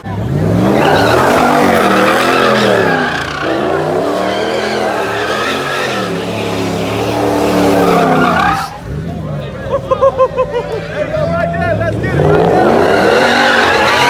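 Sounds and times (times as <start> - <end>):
truck engine revving: 0.0 - 14.0
tyres squealing: 0.4 - 9.0, 12.1 - 14.0.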